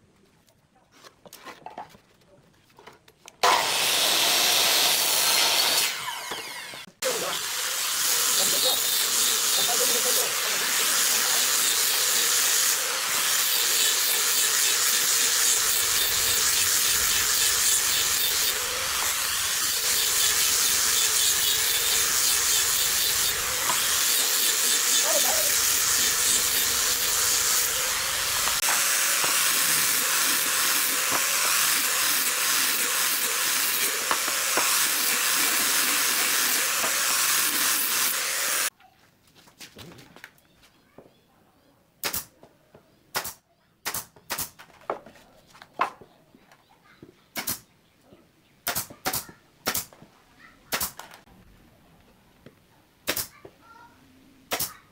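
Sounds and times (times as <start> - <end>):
sanding pad hissing on wood: 6.6 - 38.7.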